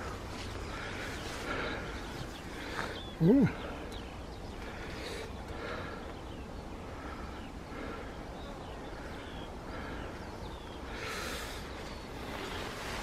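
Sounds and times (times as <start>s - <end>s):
bird chirps: 0.0s - 13.0s.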